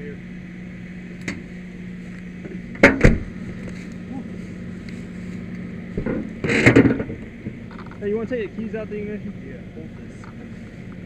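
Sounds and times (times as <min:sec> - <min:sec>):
low steady hum: 0:00.0 - 0:11.0
sharp knocks: 0:02.5 - 0:03.3
rustling and knocking: 0:05.9 - 0:08.0.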